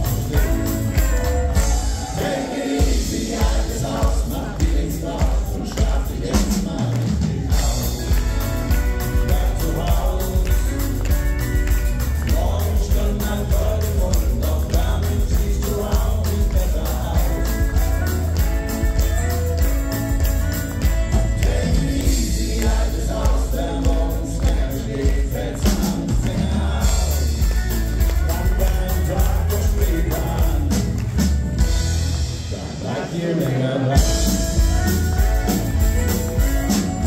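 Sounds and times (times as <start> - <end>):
person singing: 0.0 - 31.0
drums keeping a steady beat: 0.0 - 37.0
electric guitars: 0.0 - 37.0.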